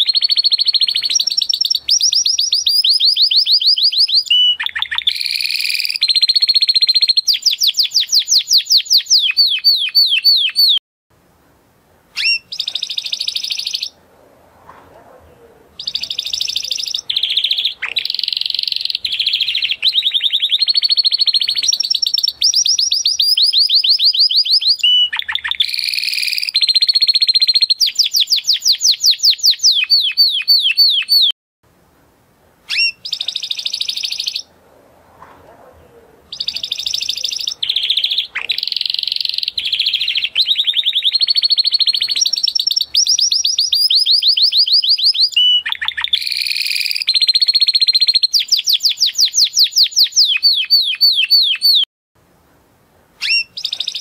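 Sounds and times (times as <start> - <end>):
canary singing trills: 0.0 - 10.8, 12.2 - 14.0, 15.2 - 31.3, 32.7 - 34.5, 35.6 - 51.9, 53.2 - 54.0.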